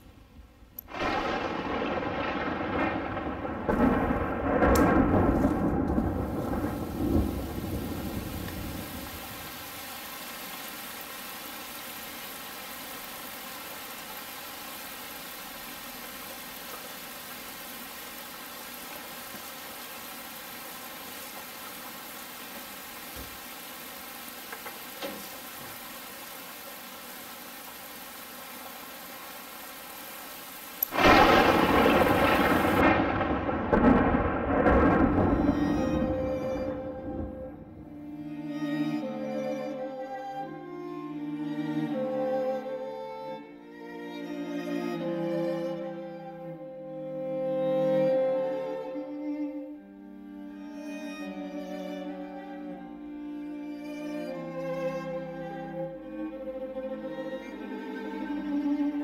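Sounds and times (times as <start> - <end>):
steady rain: 0.0 - 59.0
loud thunder crash: 0.9 - 9.0, 30.9 - 37.8
thunder rumbling: 0.9 - 9.6, 30.9 - 37.9.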